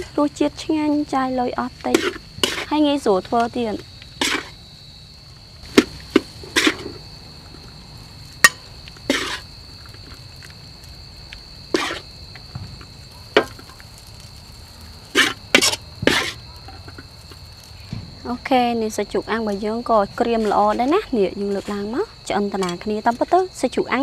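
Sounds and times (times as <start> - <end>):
crickets chirring: 0.0 - 24.0
metal spatula scraping wok: 1.9 - 2.8, 4.1 - 4.6, 5.7 - 7.0, 9.1 - 9.5, 11.7 - 12.0, 15.1 - 17.0, 20.2 - 21.9.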